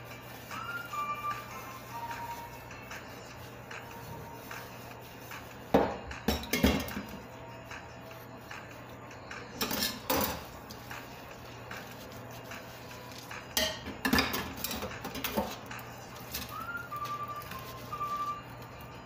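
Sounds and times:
dishes and utensils clattering: 0:05.7 - 0:07.4, 0:09.3 - 0:16.8.

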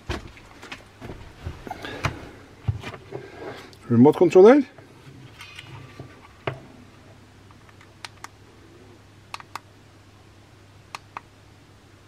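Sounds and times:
steady low hum: 0:00.0 - 0:12.0
remote control buttons clicking: 0:09.3 - 0:09.7.

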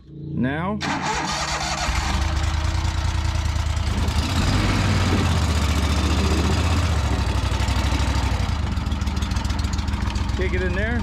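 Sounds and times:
boat motor humming with pulsing: 0:03.7 - 0:10.6.

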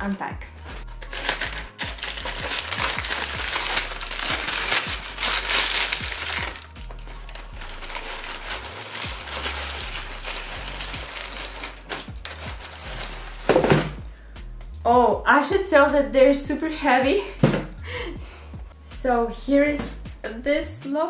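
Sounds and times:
tissue paper crinkling: 0:00.6 - 0:13.6.

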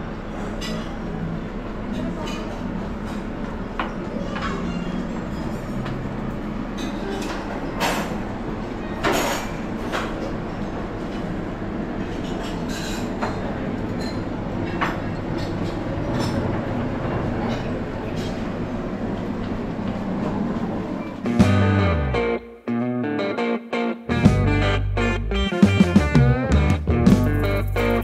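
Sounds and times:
dishes and glassware clinking: 0:06.6 - 0:08.3, 0:09.0 - 0:10.3, 0:12.0 - 0:16.5.

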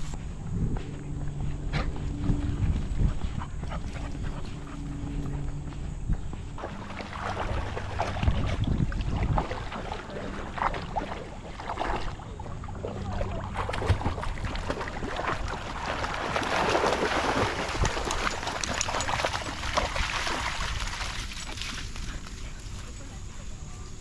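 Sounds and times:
dogs splashing through water: 0:06.5 - 0:23.4.

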